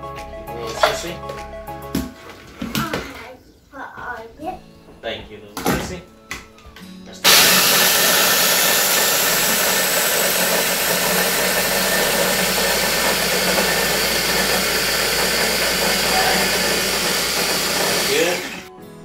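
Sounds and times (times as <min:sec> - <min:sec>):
blender motor running: 0:07.2 - 0:18.7.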